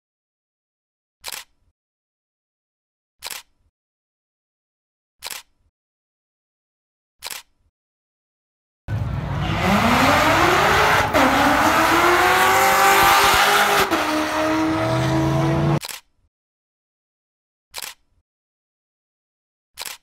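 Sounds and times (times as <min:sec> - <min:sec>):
car engine accelerating hard: 0:08.9 - 0:15.8.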